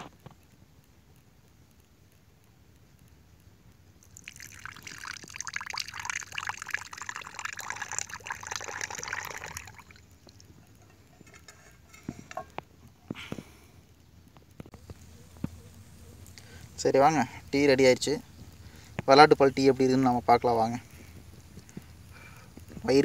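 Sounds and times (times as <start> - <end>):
tea pouring into a cup: 4.0 - 10.5.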